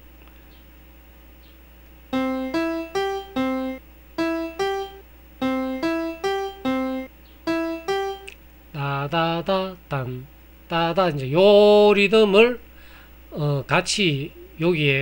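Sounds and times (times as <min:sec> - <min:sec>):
software piano notes: 0:02.1 - 0:08.4.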